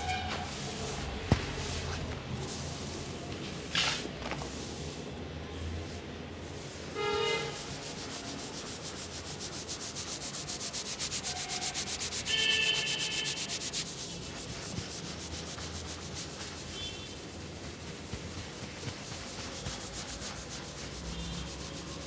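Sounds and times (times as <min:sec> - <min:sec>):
fingers scratching through hair: 0:07.6 - 0:22.0.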